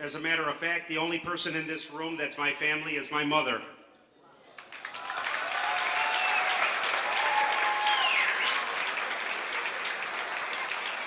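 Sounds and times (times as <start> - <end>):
crowd applauding: 4.6 - 11.0
voices cheering: 4.8 - 11.0.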